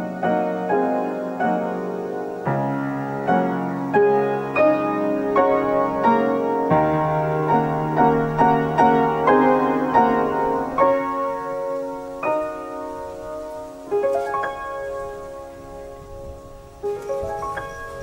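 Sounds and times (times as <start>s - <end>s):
upright piano played softly: 0.0s - 18.0s.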